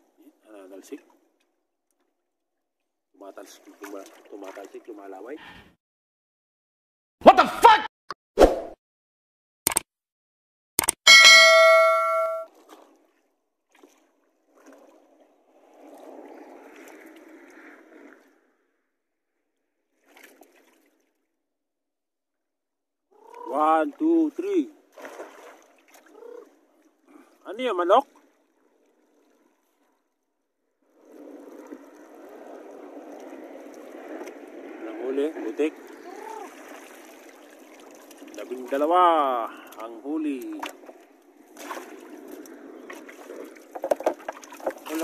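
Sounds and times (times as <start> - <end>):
water sloshing around wading person: 3.3 - 5.3, 12.5 - 18.3, 19.9 - 21.4, 23.2 - 30.2, 30.8 - 45.0
notification bell chime: 11.1 - 12.5.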